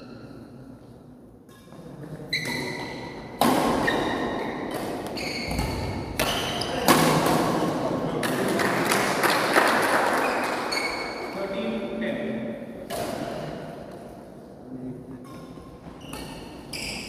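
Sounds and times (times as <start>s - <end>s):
shoe squeaks: 0.0s - 0.5s, 1.5s - 6.8s, 10.2s - 11.4s, 15.2s - 17.0s
racket hitting shuttlecock: 2.4s - 7.6s, 12.8s - 14.1s.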